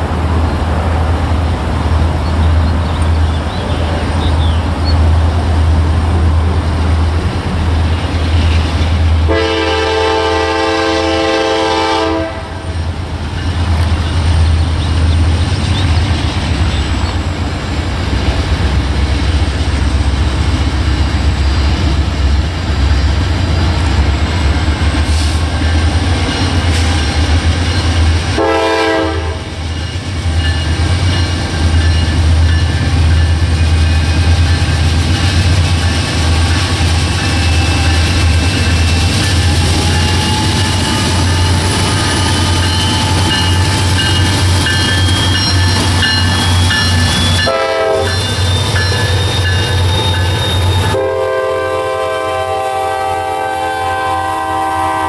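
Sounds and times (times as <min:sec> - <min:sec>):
low train rumble: 0:00.0 - 0:55.0
train air horn blasts: 0:09.3 - 0:12.7, 0:28.4 - 0:29.6, 0:47.3 - 0:55.0.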